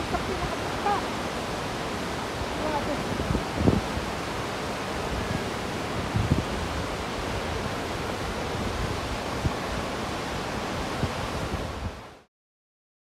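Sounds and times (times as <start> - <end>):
waterfall rushing: 0.0 - 12.3
wind thumps on microphone: 3.2 - 4.0, 6.0 - 6.7.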